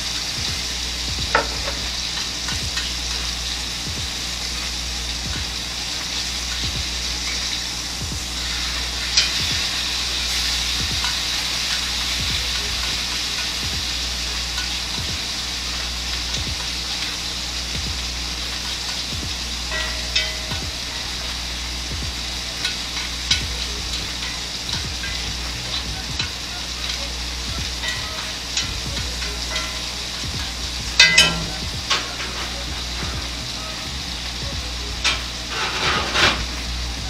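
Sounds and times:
steak sizzling in a pan: 0:00.0 - 0:37.0
sharp clinks: 0:19.7 - 0:33.9.

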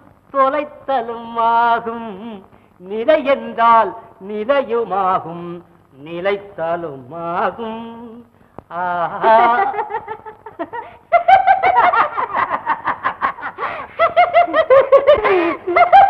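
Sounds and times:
woman laughing heartily: 0:09.1 - 0:16.0.

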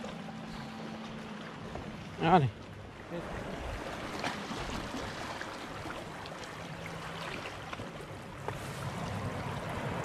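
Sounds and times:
sea water lapping and splashing: 0:00.0 - 0:10.0.

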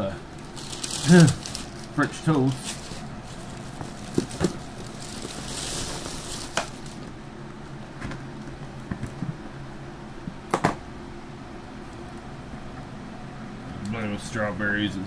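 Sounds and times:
low room hum: 0:00.0 - 0:15.0
takeout containers rustling: 0:00.3 - 0:07.2.

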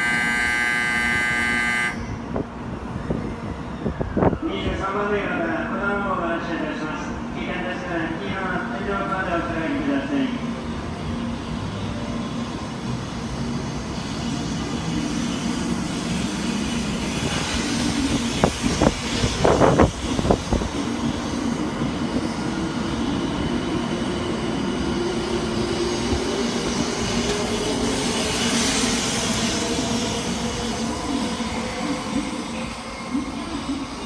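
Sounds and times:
train motor whine: 0:00.0 - 0:02.1
train rolling noise: 0:02.0 - 0:34.0.

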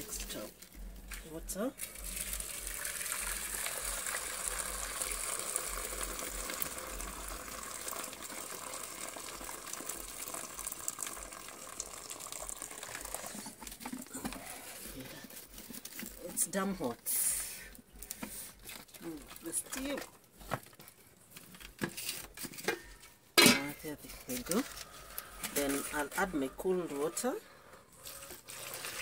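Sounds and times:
water pouring into metal bowl: 0:01.8 - 0:14.0, 0:28.0 - 0:29.0.

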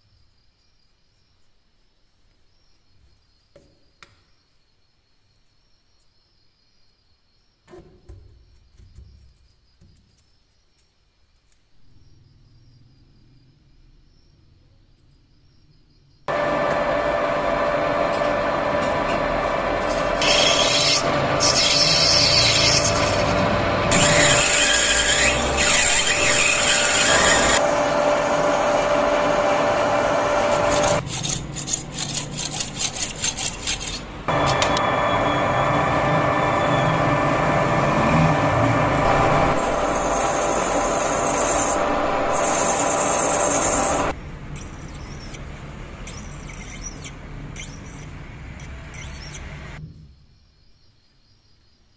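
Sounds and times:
drill bit boring into brass: 0:16.3 - 0:31.4, 0:34.3 - 0:44.1
metal lathe motor hum: 0:16.3 - 0:31.4, 0:34.3 - 0:44.1
cutting tool scraping brass: 0:18.0 - 0:27.6, 0:28.7 - 0:34.7, 0:39.0 - 0:45.4, 0:46.1 - 0:49.6
high whistle: 0:39.0 - 0:40.6.

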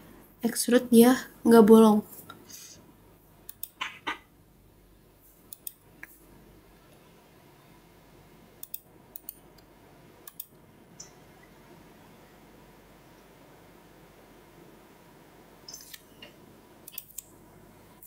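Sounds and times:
low steady hiss: 0:00.0 - 0:18.0
computer mouse clicking: 0:03.5 - 0:04.0, 0:05.5 - 0:05.8, 0:08.6 - 0:11.2, 0:15.7 - 0:17.3.

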